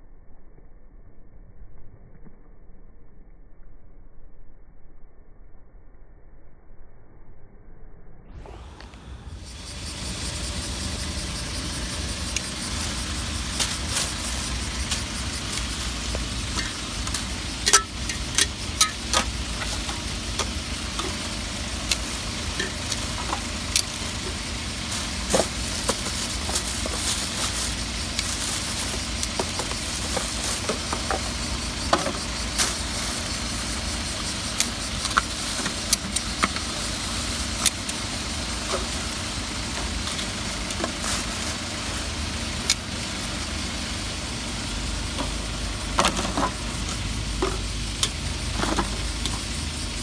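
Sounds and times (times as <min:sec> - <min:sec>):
steady low rumble: 0:00.0 - 0:50.0
sharp crackles: 0:08.5 - 0:43.4
plastic bags rustling: 0:12.5 - 0:42.5.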